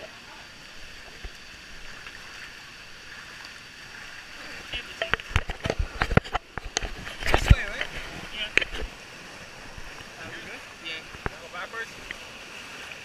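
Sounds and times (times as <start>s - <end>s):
water rushing: 0.0s - 13.0s
thumps and splashes: 0.8s - 10.2s, 11.0s - 11.4s.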